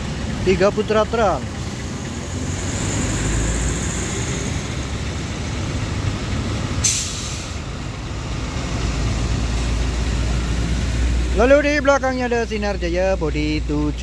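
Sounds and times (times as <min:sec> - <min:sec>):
heavy traffic on wet road: 0:00.0 - 0:14.0
short sharp hiss: 0:06.8 - 0:07.6.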